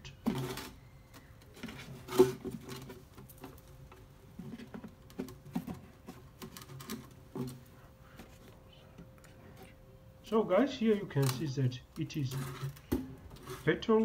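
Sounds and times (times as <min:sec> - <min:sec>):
cloth rubbing plastic tank: 0:12.1 - 0:14.0.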